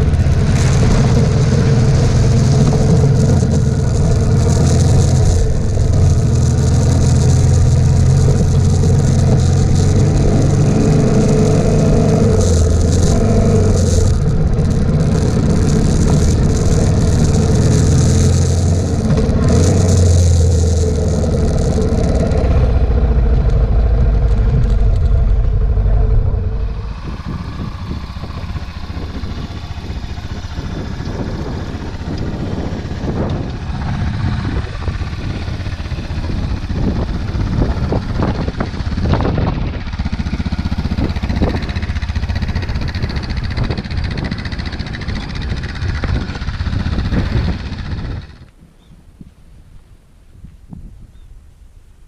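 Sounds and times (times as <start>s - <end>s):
motorcycle engine: 0.0s - 48.6s
wind noise: 0.0s - 52.0s.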